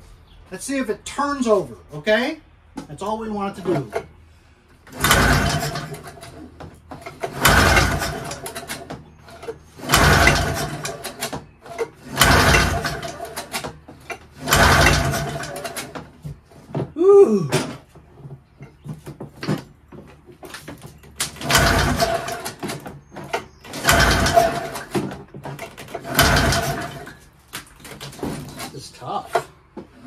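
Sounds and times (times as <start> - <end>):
engine cranking by pull rope: 4.8 - 16.2, 21.2 - 28.8.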